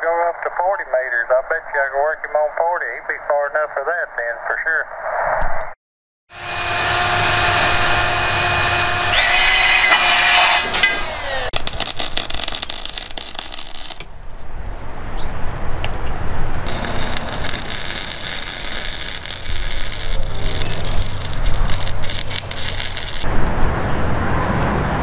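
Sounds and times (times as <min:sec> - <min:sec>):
several-toned hum: 0:06.3 - 0:14.1
welding arc crackling: 0:11.3 - 0:14.1, 0:16.6 - 0:23.3.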